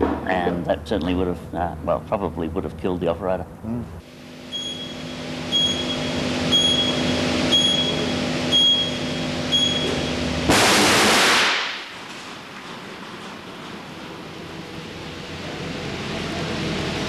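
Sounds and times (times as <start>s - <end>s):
steady hum: 0.0s - 17.0s
high beeps: 4.5s - 10.1s
circuit breaker arcing blast: 9.1s - 12.5s.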